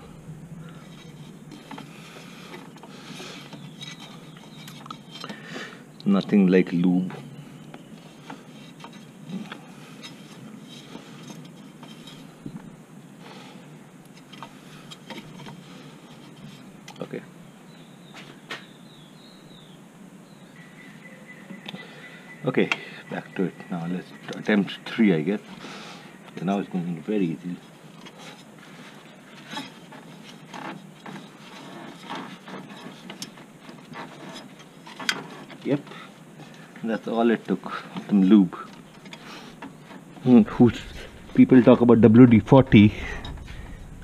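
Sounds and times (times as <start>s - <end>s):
steady background noise: 0.0s - 44.0s
rubber and plastic scraping metal: 0.6s - 5.4s, 27.6s - 36.6s.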